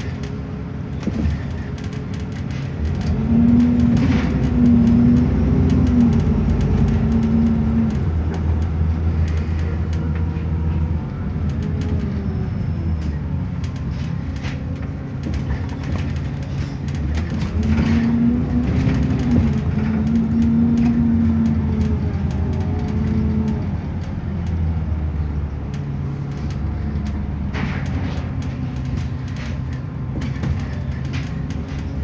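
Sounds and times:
bus engine: 0:00.0 - 0:32.0
road noise: 0:00.0 - 0:32.0.

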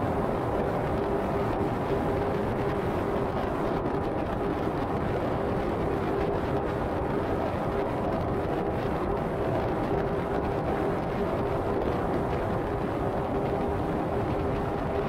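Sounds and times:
constant hum: 0:00.0 - 0:15.0.

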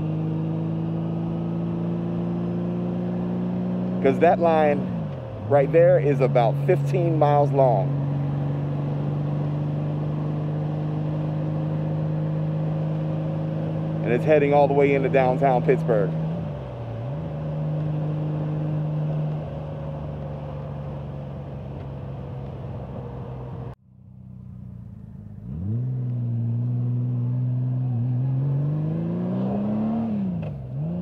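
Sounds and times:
motorcycle engine running: 0:00.0 - 0:28.6.

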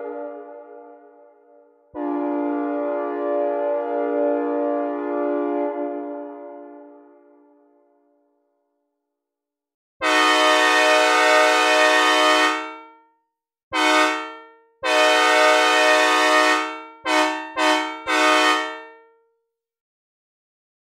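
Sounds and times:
train air horn blasts: 0:02.0 - 0:07.0, 0:10.0 - 0:12.9, 0:13.8 - 0:19.0.

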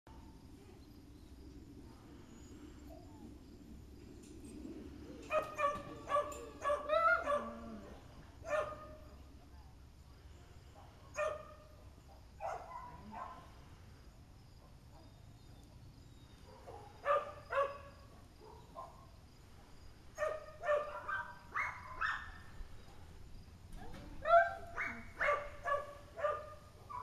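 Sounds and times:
dog barking: 0:05.3 - 0:07.8, 0:08.4 - 0:09.0, 0:10.8 - 0:11.6, 0:12.4 - 0:13.5, 0:16.5 - 0:19.1, 0:20.2 - 0:22.4, 0:24.2 - 0:27.0.

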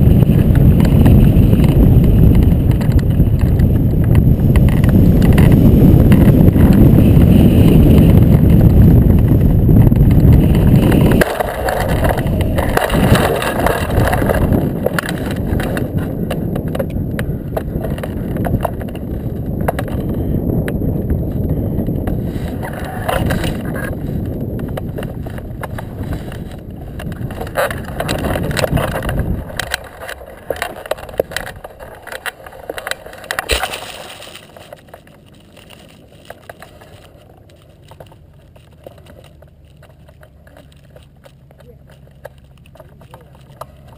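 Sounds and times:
grass rustling: 0:00.0 - 0:20.2, 0:21.1 - 0:43.9
loud wind rush: 0:00.0 - 0:32.2
knocks and scrapes: 0:00.0 - 0:43.9
uneven rumbling: 0:00.0 - 0:43.9.

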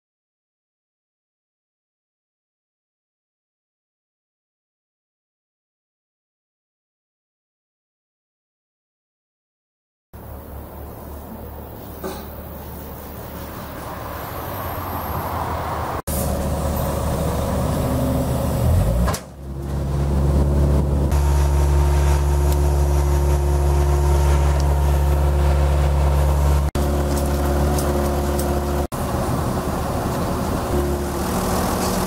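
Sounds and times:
heavy diesel machinery running: 0:16.1 - 0:32.0.

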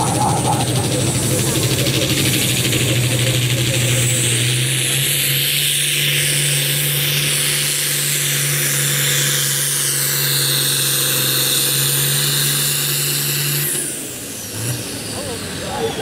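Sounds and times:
diesel tractor engine at full throttle: 0:00.0 - 0:16.0.

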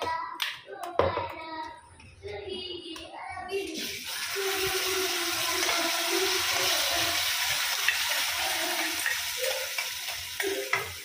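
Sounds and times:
paste sizzling in hot oil: 0:03.8 - 0:11.0.

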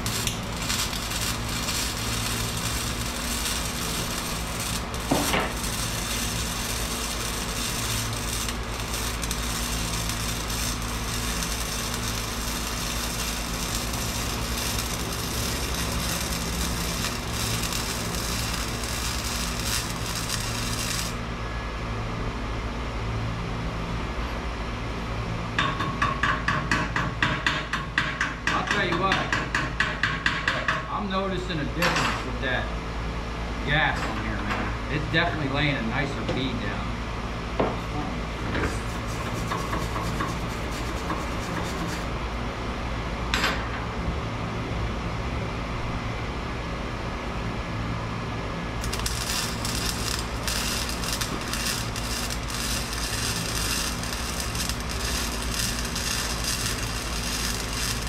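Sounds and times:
welding arc crackling: 0:00.0 - 0:21.3, 0:38.7 - 0:42.2, 0:48.7 - 0:58.0
low machine hum: 0:00.0 - 0:27.4, 0:28.3 - 0:58.0
metal strokes on pipe: 0:48.8 - 0:58.0.

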